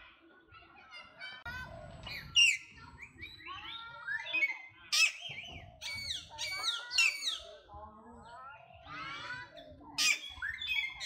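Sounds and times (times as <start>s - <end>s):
monkeys squealing and chirping: 1.9s - 7.6s, 8.9s - 11.0s.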